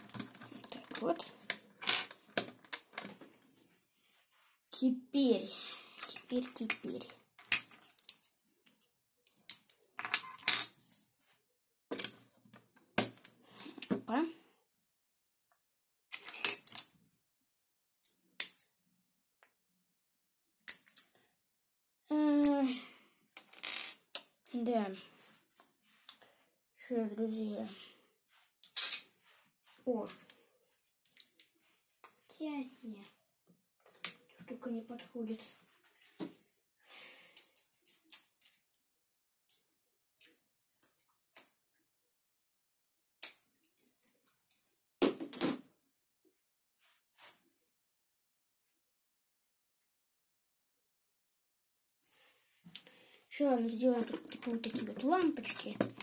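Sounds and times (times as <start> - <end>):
plastic bricks clattering: 53.8 - 56.0.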